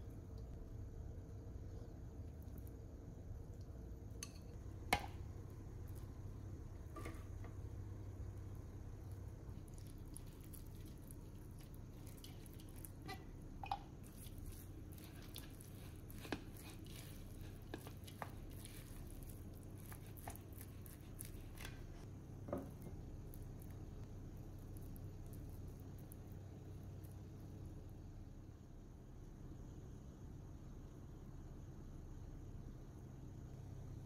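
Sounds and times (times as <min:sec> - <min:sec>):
faint low hum: 0:00.0 - 0:34.0
rice being mixed: 0:04.2 - 0:27.3
spatula tapping glass bowl: 0:13.1 - 0:13.9.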